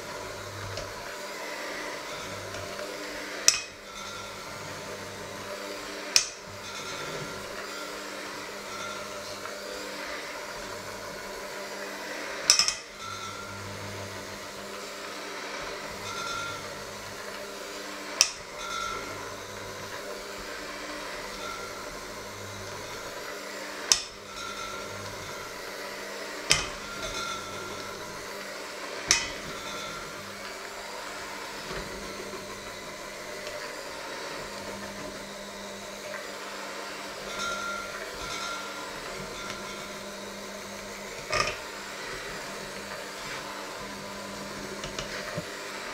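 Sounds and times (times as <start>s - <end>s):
electric hand mixer running: 0.0s - 45.9s
beaters knocking metal bowl: 12.4s - 13.6s, 16.0s - 16.9s, 23.9s - 25.6s, 26.4s - 28.4s, 29.0s - 30.5s, 41.1s - 42.5s.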